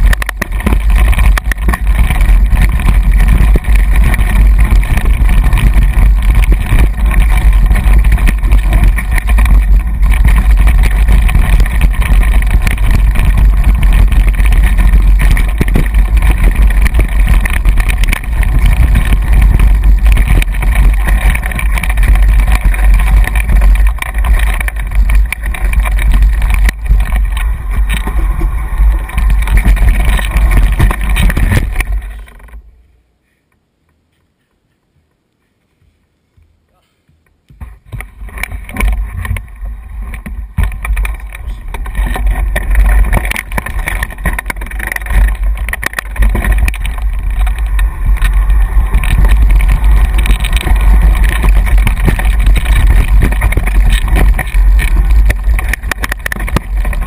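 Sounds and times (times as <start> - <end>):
wind buffeting microphone: 0.0 - 32.3, 37.7 - 57.0
bike rattling on rough trail: 0.0 - 32.8, 37.4 - 57.0.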